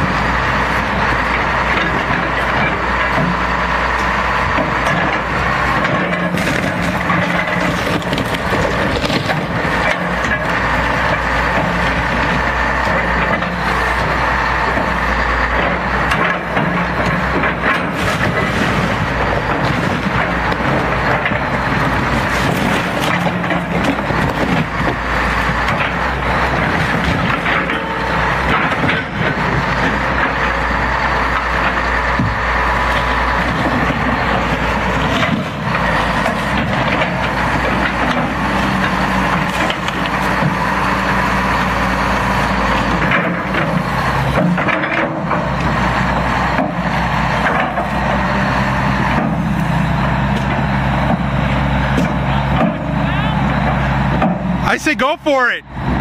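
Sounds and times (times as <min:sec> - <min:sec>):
excavator engine running: 0:00.0 - 0:56.0
boat hull cracking and splintering: 0:05.9 - 0:10.1.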